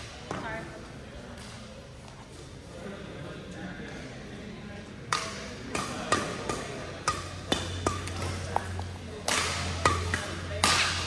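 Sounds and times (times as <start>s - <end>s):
racket striking shuttlecock: 5.1s - 11.0s.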